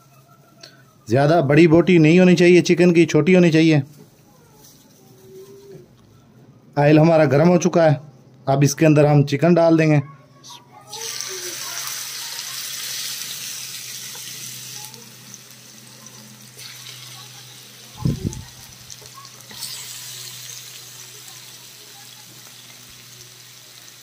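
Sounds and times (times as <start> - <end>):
chicken sizzling in hot oil: 10.9 - 24.0.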